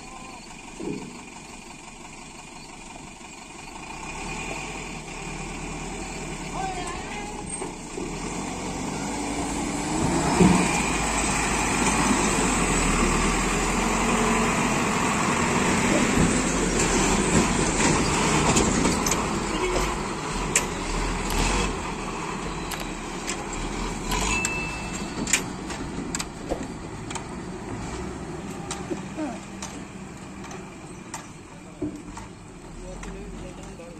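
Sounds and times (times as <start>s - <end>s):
truck diesel engine: 0.0s - 33.9s
sharp knocks and rattles: 16.0s - 21.6s, 22.8s - 33.9s.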